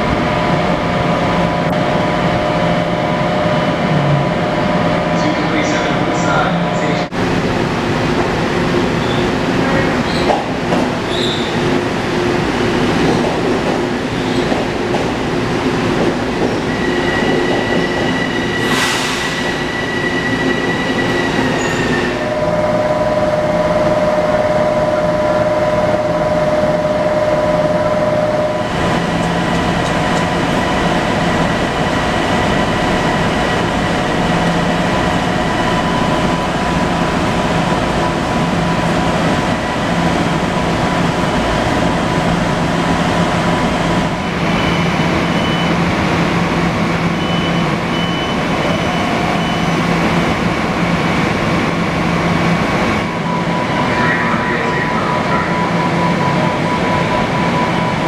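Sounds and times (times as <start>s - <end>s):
train rolling to a stop: 7.7s - 58.0s.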